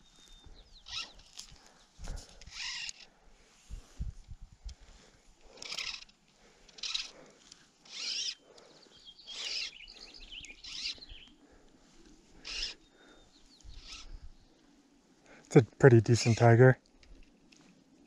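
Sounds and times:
fly line zipping through rod guides: 0.8s - 1.5s, 2.2s - 3.1s, 5.5s - 7.2s, 7.8s - 8.5s, 9.3s - 9.8s, 10.5s - 11.0s, 12.4s - 12.8s, 13.7s - 14.2s.

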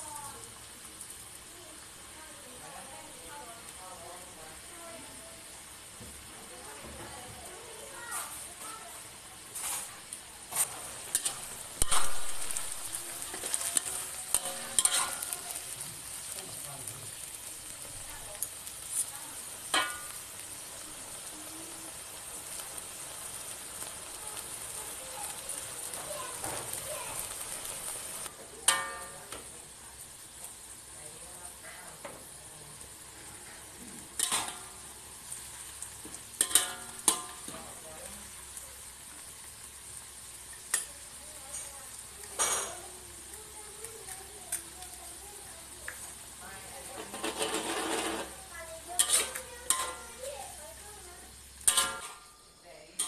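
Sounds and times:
leaves sizzling in hot oil: 0.0s - 53.0s
metal spatula scraping wok: 9.5s - 17.2s, 18.7s - 20.4s, 33.1s - 35.0s, 36.3s - 37.7s, 46.8s - 50.6s, 51.6s - 52.4s.

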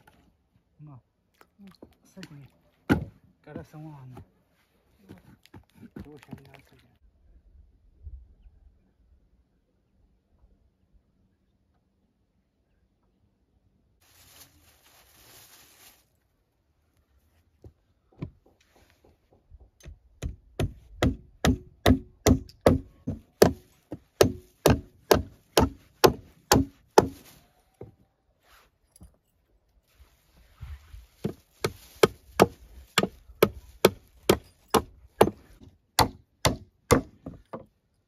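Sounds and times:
hammer driving nails into wood: 32.0s - 37.7s.

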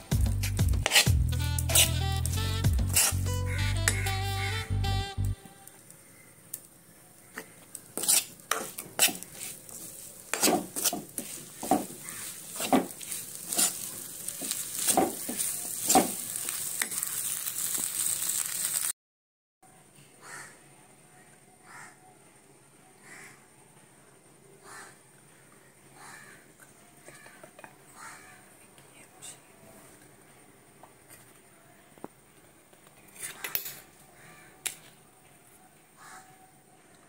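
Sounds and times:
food sizzling: 0.0s - 19.0s
spoon scraping a frying pan: 0.4s - 4.1s, 7.3s - 17.9s.

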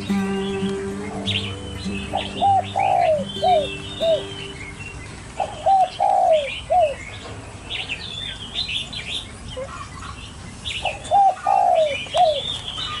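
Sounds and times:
birds chirping and warbling: 0.0s - 13.0s
dove cooing: 1.0s - 4.8s, 5.4s - 7.0s, 10.8s - 12.5s.

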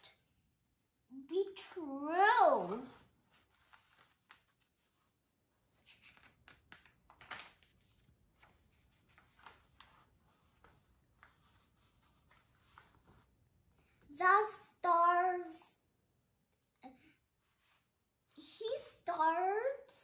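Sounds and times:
paper pages rustling: 2.6s - 14.0s
light clicks of pages: 2.6s - 14.1s.

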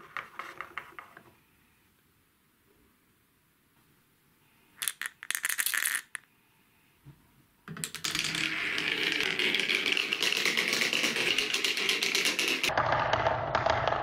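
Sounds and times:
balls rolling down marble-run track: 4.8s - 6.2s, 7.7s - 14.0s
small balls rattling in plastic cup: 4.8s - 6.2s, 7.8s - 12.7s.

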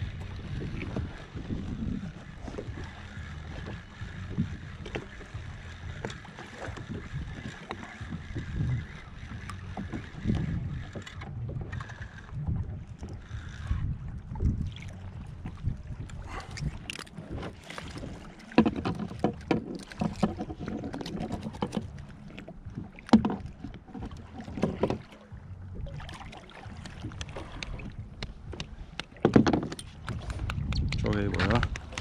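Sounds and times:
steady low rumble: 0.0s - 17.4s, 25.2s - 29.0s
clicks and knocks on plastic kayak: 16.9s - 22.0s, 23.0s - 25.1s, 26.8s - 32.0s.

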